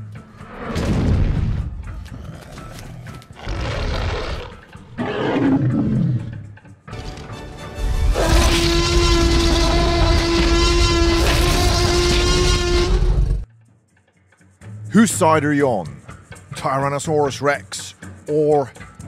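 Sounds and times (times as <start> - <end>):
cartoon dinosaur growling and roaring: 2.1 - 6.4, 8.1 - 13.4.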